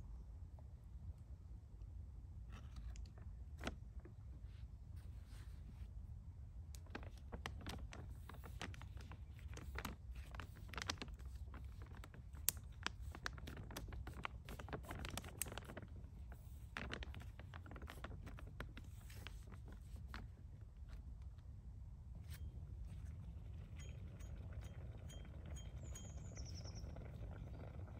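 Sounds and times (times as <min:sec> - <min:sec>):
foil pouch crinkling: 0:06.8 - 0:21.2.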